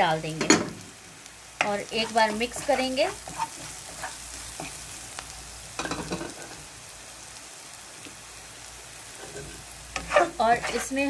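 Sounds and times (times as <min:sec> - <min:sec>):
spices sizzling in hot oil: 0:00.0 - 0:11.0
spatula scraping a pan: 0:01.6 - 0:05.0, 0:09.1 - 0:11.0.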